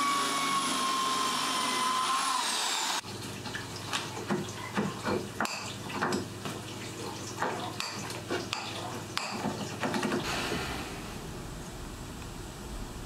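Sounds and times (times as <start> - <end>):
steady hiss: 10.2 - 13.0.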